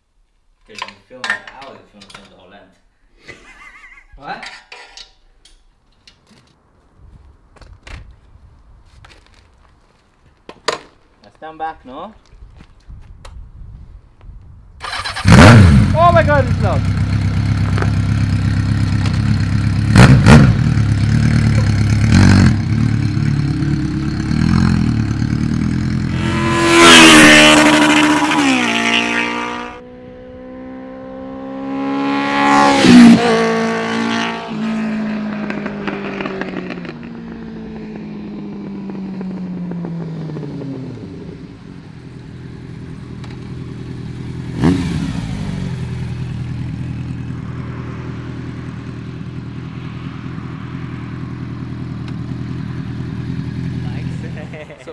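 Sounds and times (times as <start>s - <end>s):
motorcycle engine revving: 14.8s - 54.7s.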